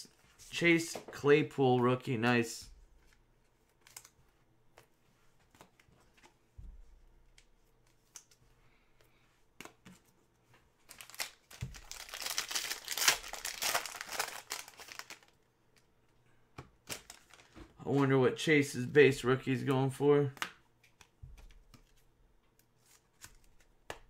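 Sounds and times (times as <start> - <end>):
foil wrapper crinkling and tearing: 10.9 - 15.3.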